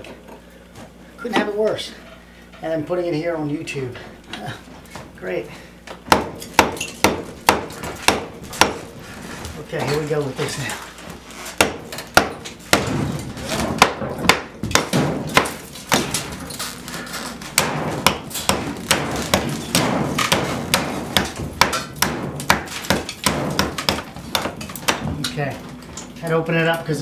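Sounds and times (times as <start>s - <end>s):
hammer striking a chisel: 6.1s - 8.8s, 11.6s - 13.0s, 17.6s - 25.1s.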